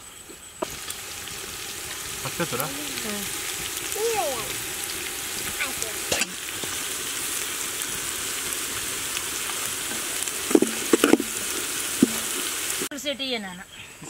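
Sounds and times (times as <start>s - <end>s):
onions sizzling in hot oil: 0.0s - 13.4s.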